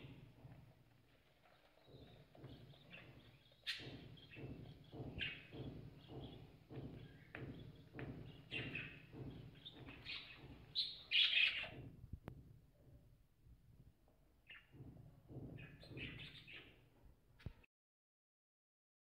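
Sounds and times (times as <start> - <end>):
budgerigars chirping: 1.4 - 11.8.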